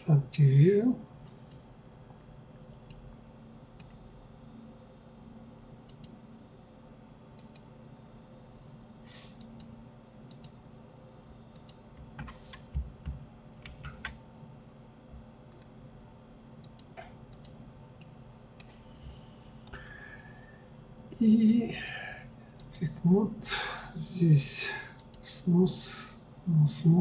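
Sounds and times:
mouse clicks: 5.9s - 6.2s, 10.3s - 10.6s, 11.5s - 12.5s, 16.6s - 17.6s.

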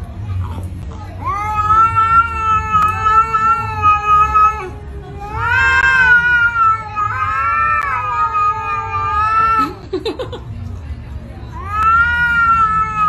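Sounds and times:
cat yowling: 1.2s - 9.8s, 11.6s - 13.0s.

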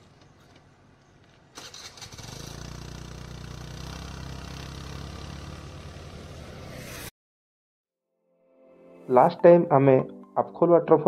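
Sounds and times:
scooter engine starting and idling: 1.4s - 6.5s.

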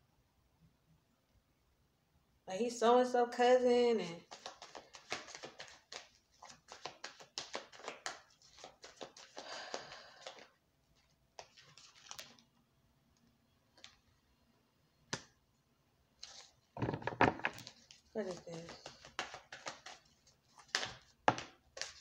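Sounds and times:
cards being shuffled: 4.2s - 12.4s, 16.2s - 22.0s.

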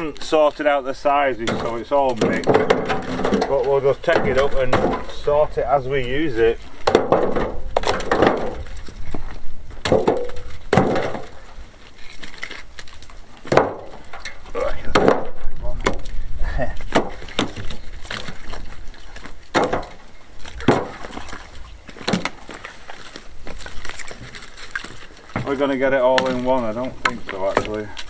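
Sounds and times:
logs knocking into wheelbarrow: 1.4s - 11.6s, 13.4s - 16.2s, 16.8s - 22.6s, 25.3s - 28.0s.

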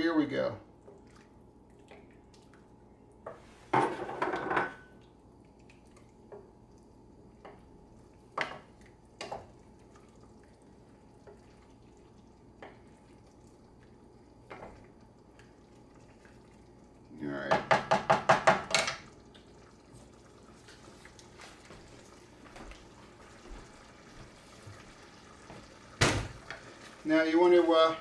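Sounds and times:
wooden spoon knocking pot: 17.5s - 19.0s.

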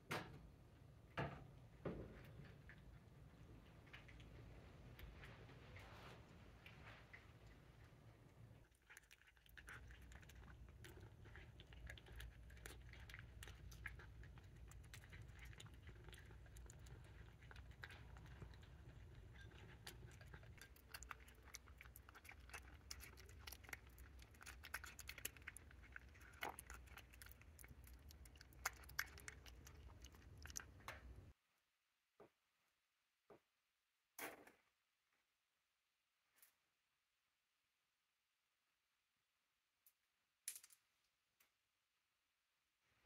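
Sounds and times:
low steady hum: 0.0s - 31.4s.

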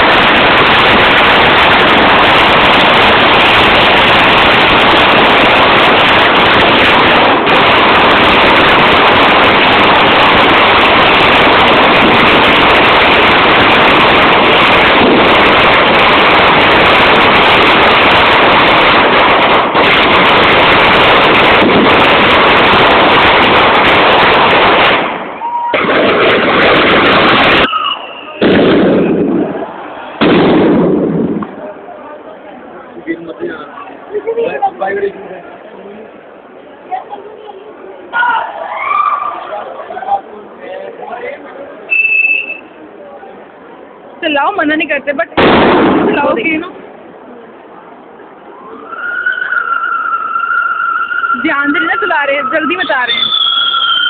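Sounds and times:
firecrackers crackling: 0.0s - 32.0s, 41.8s - 42.8s, 44.1s - 47.4s, 48.2s - 54.0s.

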